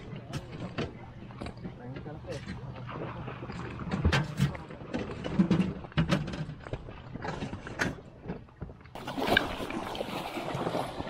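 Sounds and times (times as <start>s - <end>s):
water rushing and splashing: 9.0s - 11.0s.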